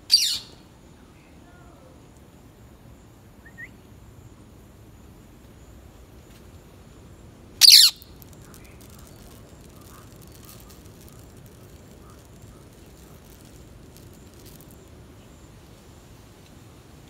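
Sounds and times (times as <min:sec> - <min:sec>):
faint rising chirp: 0:02.4 - 0:15.6
parakeet harsh screech: 0:07.6 - 0:08.0.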